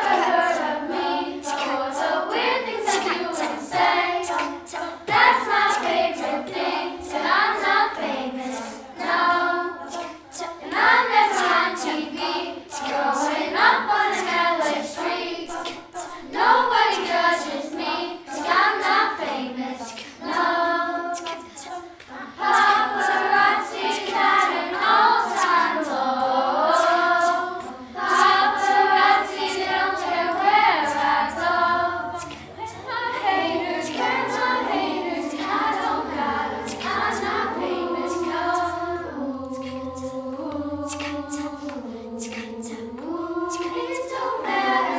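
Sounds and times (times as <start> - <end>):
children singing a cappella: 0.0 - 44.9
percussive clicks: 21.1 - 22.9, 32.1 - 32.8, 39.4 - 44.2.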